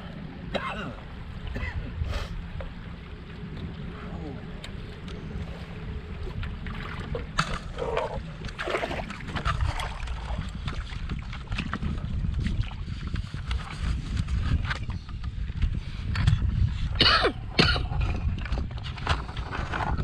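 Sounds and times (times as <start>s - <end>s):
wind on microphone: 0.0s - 20.0s
water splashing on canoe hull: 4.6s - 15.7s.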